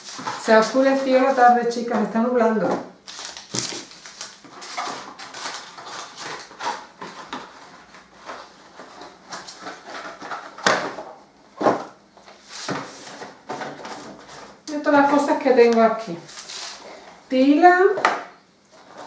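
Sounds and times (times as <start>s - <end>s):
cardboard boxes rustling and knocking: 3.4s - 12.0s.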